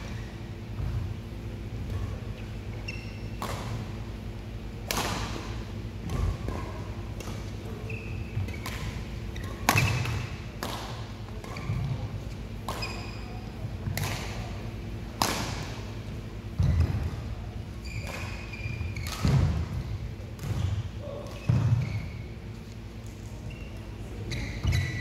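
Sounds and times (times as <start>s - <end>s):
shoe squeaks: 1.9s - 3.4s, 7.8s - 8.6s, 12.8s - 13.4s, 17.8s - 19.3s, 20.6s - 22.4s, 23.3s - 25.0s
racket hitting shuttlecock: 1.9s - 4.0s, 4.8s - 7.7s, 8.3s - 16.0s, 17.9s - 22.0s.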